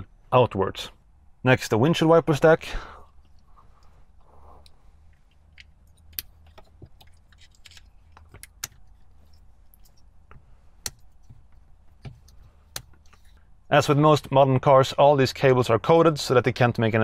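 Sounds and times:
plastic parts clicking and rattling: 0:05.1 - 0:13.4.

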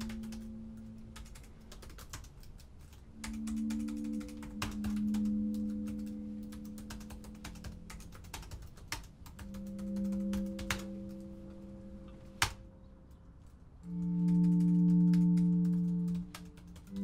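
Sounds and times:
laptop keyboard typing: 0:00.0 - 0:11.5, 0:13.9 - 0:17.0
low sustained music tones: 0:00.0 - 0:17.0
loud held music chord: 0:03.1 - 0:08.2, 0:09.4 - 0:13.1, 0:13.8 - 0:17.0.

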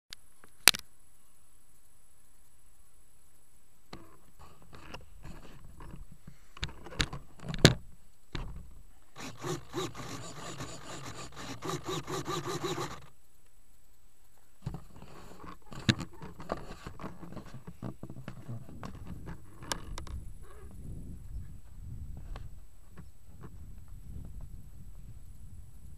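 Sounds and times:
pulsing pitched buzz: 0:09.2 - 0:13.1
handling knocks and scrapes: 0:14.6 - 0:20.1.

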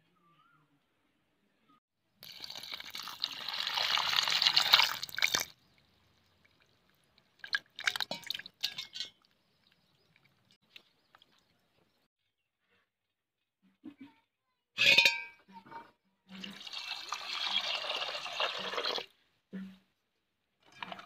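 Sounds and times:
water pouring into steel bowl: 0:02.2 - 0:05.5, 0:16.4 - 0:19.1.

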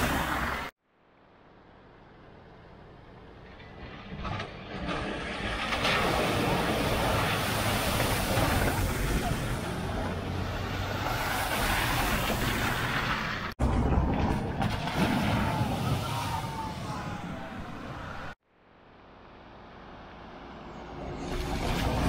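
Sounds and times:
water spray from car wheels: 0:00.0 - 0:00.8, 0:04.8 - 0:13.6, 0:21.1 - 0:22.0
car engine rumble: 0:00.0 - 0:15.6.

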